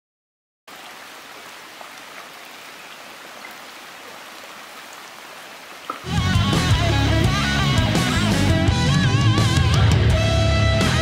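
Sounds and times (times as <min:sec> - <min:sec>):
creek water running among ice: 0:00.7 - 0:07.8
electric guitar rock music: 0:06.0 - 0:11.0.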